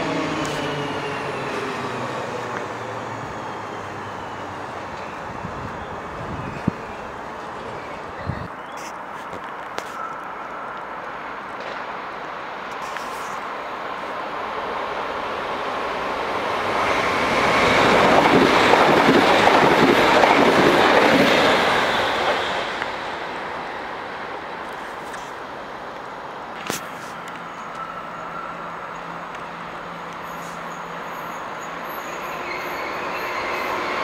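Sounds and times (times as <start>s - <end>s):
train wheels on rails: 0.0s - 8.2s, 14.4s - 23.6s, 24.5s - 34.0s.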